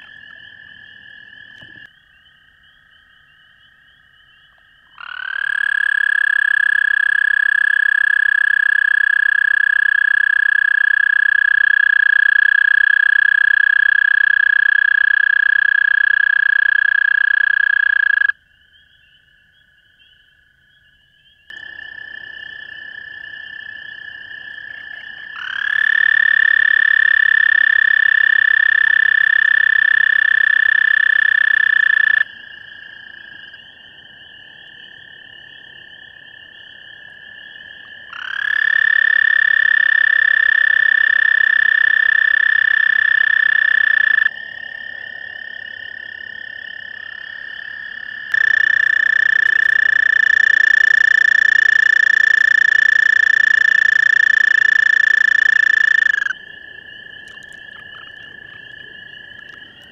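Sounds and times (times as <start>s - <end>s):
chorus of frog trills: 0.0s - 59.9s
toad trilling: 4.5s - 18.4s, 23.0s - 32.3s, 38.1s - 44.3s, 45.2s - 56.4s.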